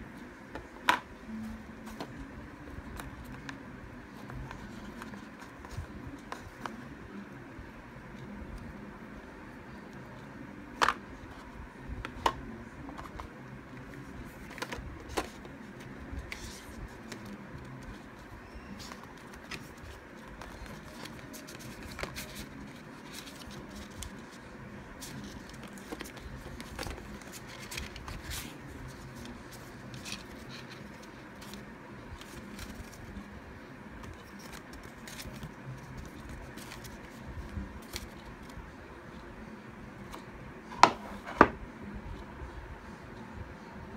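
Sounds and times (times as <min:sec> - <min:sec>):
low room noise: 0:00.0 - 0:43.9
cardboard and paper rustling: 0:10.8 - 0:33.3, 0:34.0 - 0:39.2.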